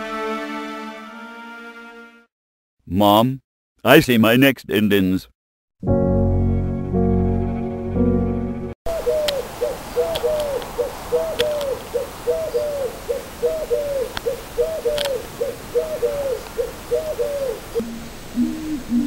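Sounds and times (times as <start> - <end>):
pigeon cooing: 8.9 - 19.0
faint clicks: 10.1 - 10.7, 11.4 - 11.7, 14.9 - 15.2.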